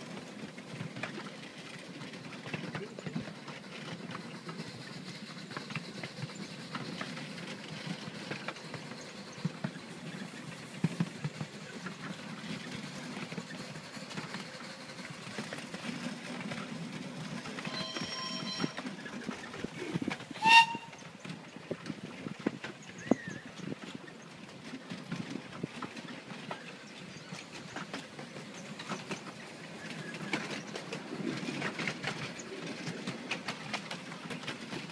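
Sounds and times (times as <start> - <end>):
train carriages rumbling on track: 0.0 - 34.9
steam locomotive whistle: 17.6 - 19.0, 20.4 - 21.1.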